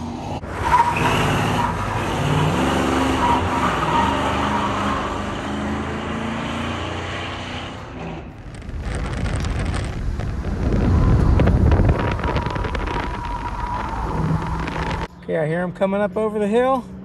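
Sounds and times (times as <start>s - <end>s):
car engine low rumble: 7.7s - 17.0s
wind noise: 8.0s - 15.1s.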